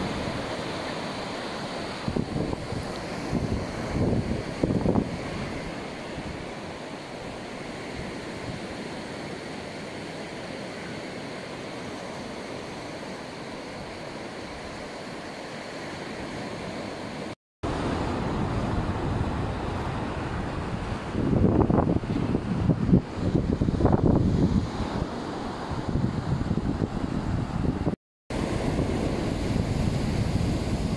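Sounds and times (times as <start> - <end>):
surf washing onto beach: 0.0 - 30.9
wind buffeting microphone: 2.0 - 6.5, 17.6 - 30.9.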